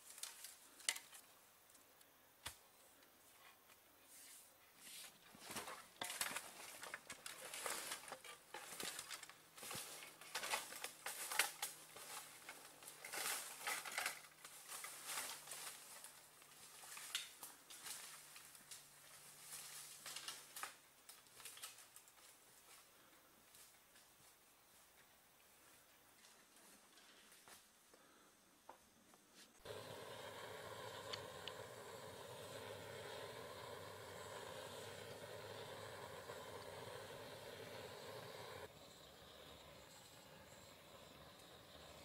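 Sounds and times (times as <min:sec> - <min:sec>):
dry bamboo leaves rustling: 0:00.0 - 0:01.3, 0:04.8 - 0:22.9, 0:29.6 - 0:38.7.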